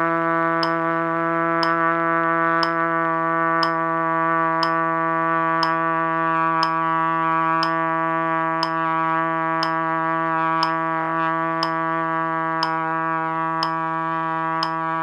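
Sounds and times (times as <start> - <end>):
trumpet long low tone: 0.0 - 15.0
metronome clicking: 0.6 - 0.9, 1.6 - 1.8, 2.6 - 2.9, 3.6 - 3.9, 4.6 - 4.9, 5.6 - 5.9, 6.6 - 7.0, 7.6 - 8.0, 8.6 - 9.0, 9.6 - 9.9, 10.6 - 10.8, 11.6 - 11.9, 12.6 - 13.0, 13.6 - 13.9, 14.6 - 15.0.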